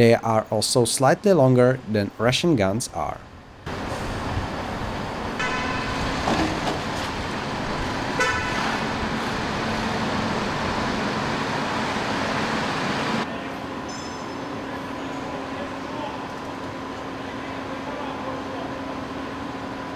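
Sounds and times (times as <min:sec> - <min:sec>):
machine shop din: 0:03.7 - 0:19.9
short horn toots: 0:05.4 - 0:06.1, 0:08.2 - 0:08.8.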